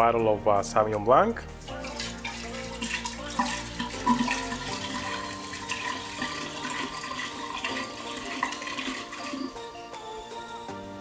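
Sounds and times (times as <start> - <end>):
wine pouring into glass jar: 1.6 - 9.7.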